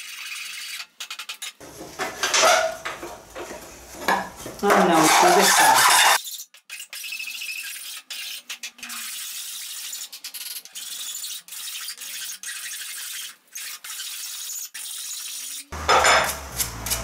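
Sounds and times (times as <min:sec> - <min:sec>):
hand file rasping on wood: 0:04.6 - 0:06.2.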